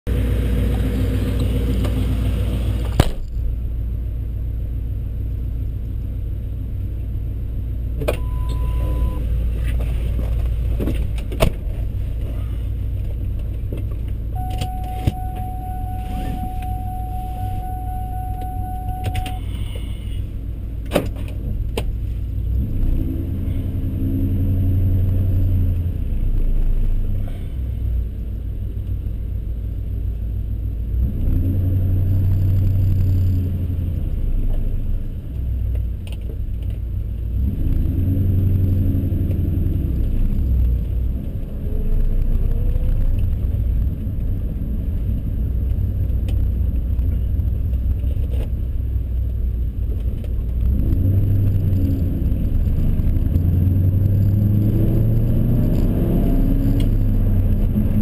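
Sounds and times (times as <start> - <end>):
car engine idling: 12.2 - 21.0
car door shutting: 14.4 - 19.4
steady tone: 14.4 - 19.5.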